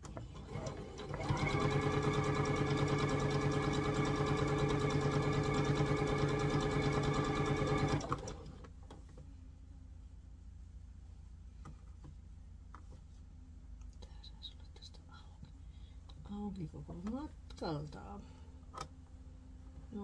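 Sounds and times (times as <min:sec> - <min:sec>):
sewing machine stitching: 0:00.1 - 0:08.6.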